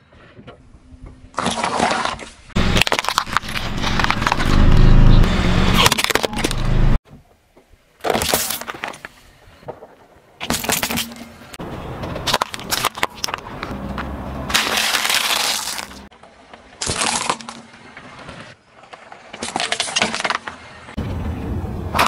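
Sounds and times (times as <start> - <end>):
car tyre crushing plastic objects: 1.3 - 4.8, 5.8 - 6.6, 8.0 - 21.0.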